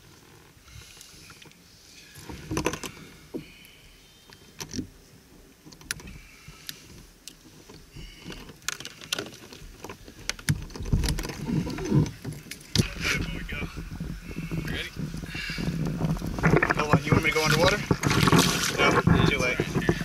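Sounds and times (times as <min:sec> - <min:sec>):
low thumps: 0:10.8 - 0:20.0.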